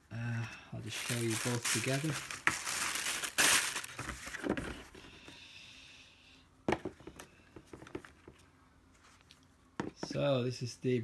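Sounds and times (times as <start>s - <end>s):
paper rustle: 0.9s - 4.7s.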